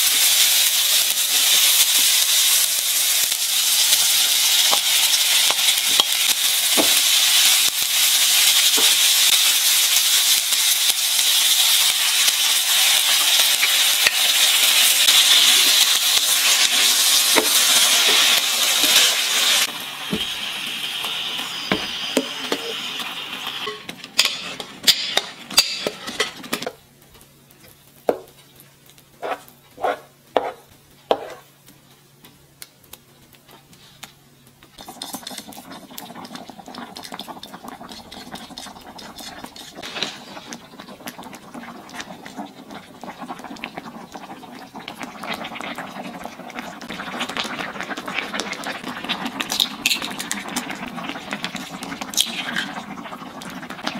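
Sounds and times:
sauce bubbling: 34.7 - 53.9
spoon stirring sauce: 36.3 - 40.1.

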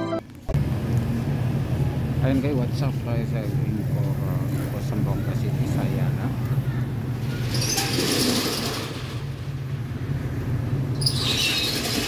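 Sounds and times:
low traffic engine hum: 0.0 - 12.0
vehicles passing with hiss: 0.6 - 12.0.

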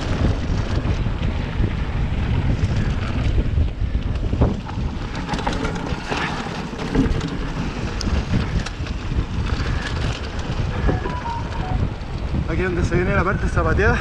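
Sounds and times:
bike clicks and rattles: 0.0 - 11.0
tyres rumbling on gravel trail: 0.0 - 14.0
wind buffeting microphone: 0.0 - 14.0.

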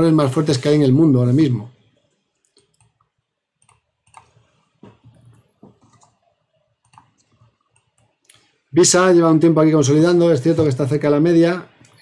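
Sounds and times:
keyboard and mouse clicks: 2.4 - 8.5.

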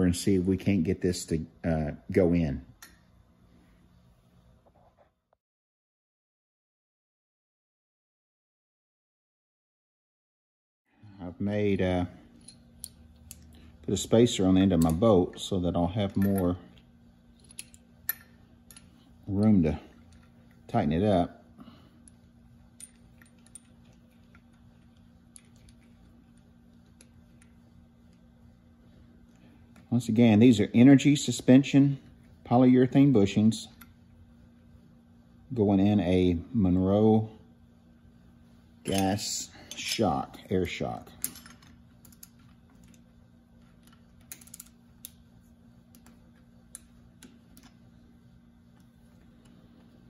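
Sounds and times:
low steady hum: 0.0 - 5.2, 10.9 - 50.0
small metal parts clicking: 17.4 - 18.9, 22.8 - 24.6, 41.2 - 43.0, 43.6 - 45.2.

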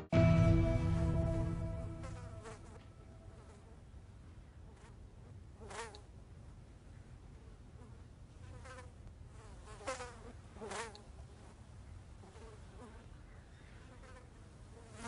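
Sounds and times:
faint low hum: 0.0 - 15.0
flies buzzing past: 1.7 - 3.8, 5.6 - 6.1, 7.8 - 11.6, 12.2 - 13.1, 13.8 - 15.0.

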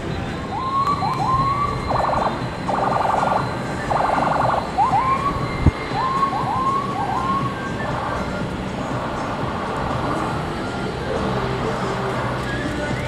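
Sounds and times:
jet engines low rumble: 0.0 - 13.0
short rising whistle-like calls: 1.3 - 9.0.

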